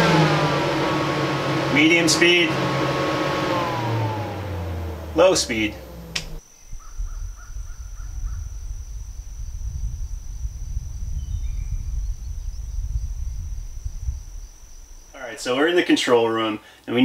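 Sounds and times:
faint bird calls: 6.4s - 9.0s
high-pitched insect drone: 6.4s - 15.4s
wind on microphone: 6.5s - 15.2s.

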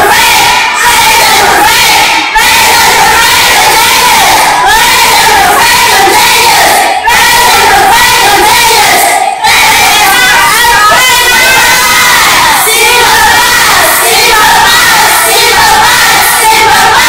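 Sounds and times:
students' voices raised: 0.0s - 17.0s.

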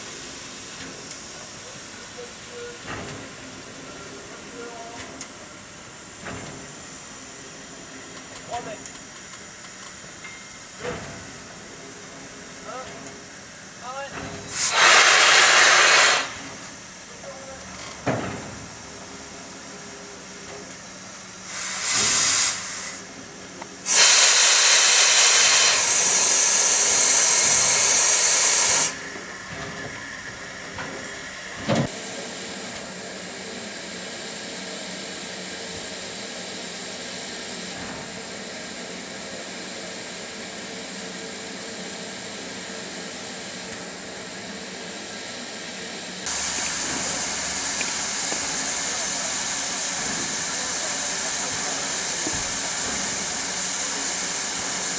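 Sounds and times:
steam locomotive venting steam: 0.0s - 54.9s.

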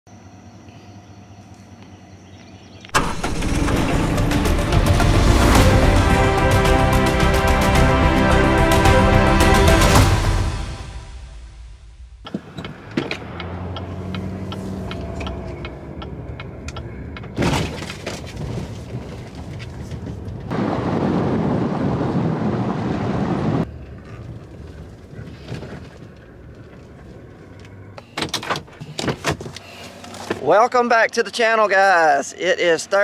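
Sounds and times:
loud rushing noise: 3.0s - 12.2s
low engine hum: 3.0s - 28.2s.

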